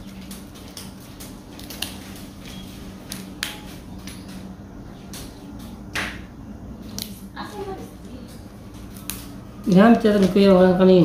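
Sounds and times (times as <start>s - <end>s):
stems snapping: 0.0s - 4.5s, 5.1s - 7.2s, 8.8s - 10.5s
steady low hum: 0.0s - 11.0s.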